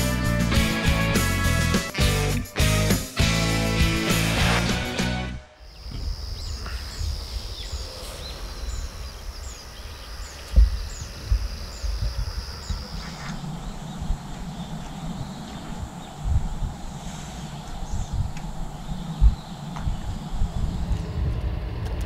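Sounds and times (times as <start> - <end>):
low rumble: 10.6 - 22.0.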